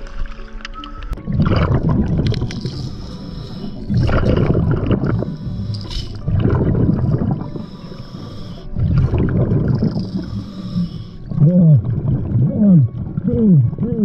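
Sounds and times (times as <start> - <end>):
exhaled bubbles rumbling underwater: 1.2 - 14.0
regulator inhale hiss: 2.7 - 4.0, 5.1 - 6.2, 7.5 - 8.8, 9.9 - 11.3.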